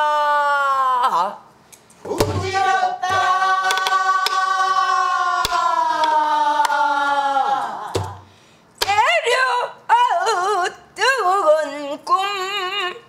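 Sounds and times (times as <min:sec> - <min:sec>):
woman singing long vowel: 0:08.8 - 0:13.0.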